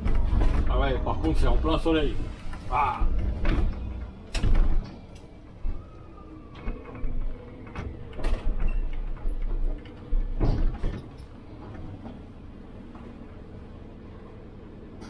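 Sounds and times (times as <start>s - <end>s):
bus engine idling: 0.0s - 15.0s.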